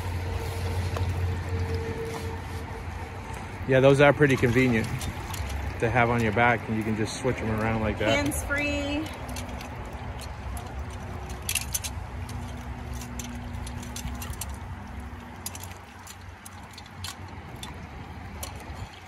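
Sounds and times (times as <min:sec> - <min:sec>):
metal trap clinking and rattling: 0:08.1 - 0:17.8.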